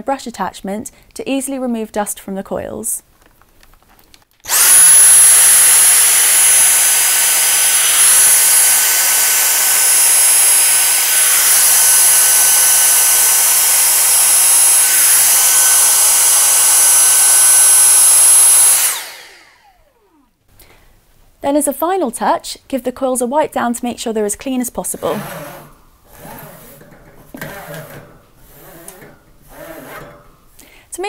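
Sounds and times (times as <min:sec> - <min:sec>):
handheld vacuum cleaner whining: 0:04.4 - 0:20.3, 0:24.8 - 0:30.7.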